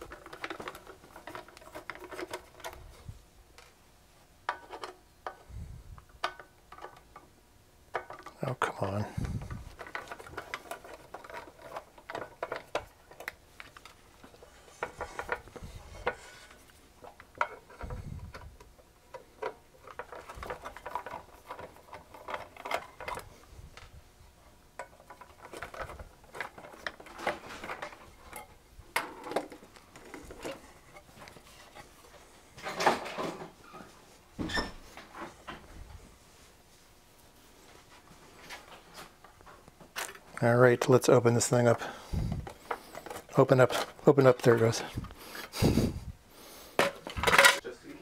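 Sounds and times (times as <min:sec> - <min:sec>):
screws and tools rattling on workbench: 0:00.0 - 0:02.9, 0:07.9 - 0:18.5, 0:19.1 - 0:23.4, 0:24.8 - 0:31.9, 0:41.5 - 0:46.1, 0:46.8 - 0:47.6.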